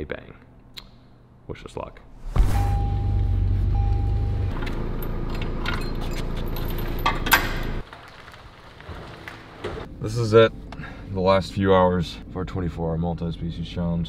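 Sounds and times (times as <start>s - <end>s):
vehicle engine rumbling: 2.1s - 7.8s
two-part chime: 2.4s - 4.5s.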